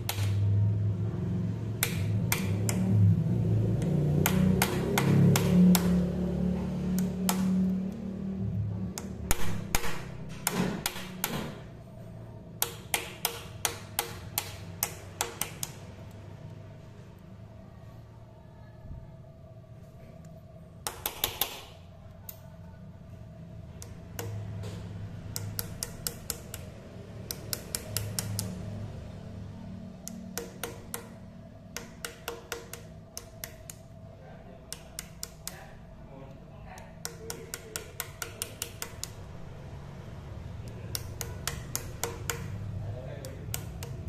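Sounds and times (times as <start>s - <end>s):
steel punch tapping on metal: 30.0s - 33.8s, 37.0s - 39.2s, 40.9s - 42.6s.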